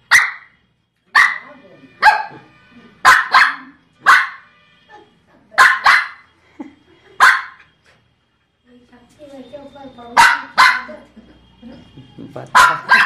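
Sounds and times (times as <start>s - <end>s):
dog yelp: 0.1s - 0.5s, 1.2s - 2.4s, 3.0s - 4.5s, 5.5s - 6.3s, 7.2s - 7.6s, 10.2s - 10.9s, 12.5s - 13.0s
small dog barking: 0.1s - 0.5s, 1.1s - 2.4s, 3.0s - 4.4s, 5.6s - 6.3s, 7.2s - 7.6s, 10.2s - 11.0s, 12.5s - 13.0s.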